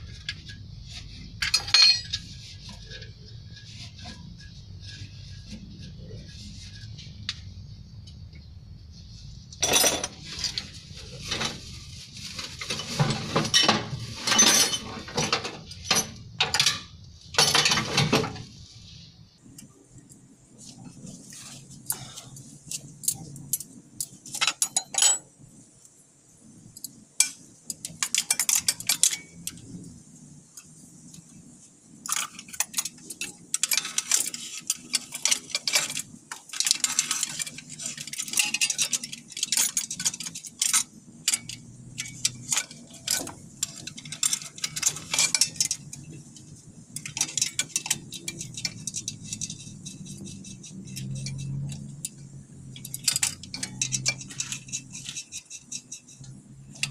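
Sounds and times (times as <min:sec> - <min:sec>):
low steady hum: 0:00.0 - 0:56.9
metal tools clinking on engine: 0:01.4 - 0:03.1, 0:09.6 - 0:11.6, 0:12.6 - 0:18.4, 0:21.9 - 0:25.3, 0:32.0 - 0:56.9.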